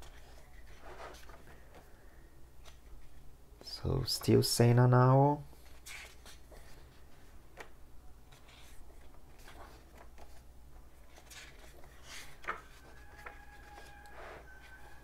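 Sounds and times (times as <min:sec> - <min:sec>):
book pages rustling: 0:00.0 - 0:02.0, 0:05.5 - 0:15.0.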